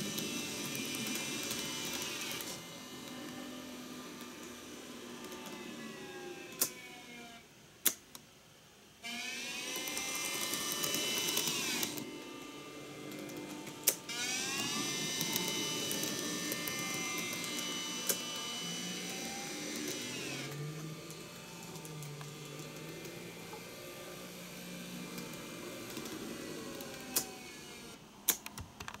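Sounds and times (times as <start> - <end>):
model train motors whining: 0.0 - 7.5, 9.0 - 28.0.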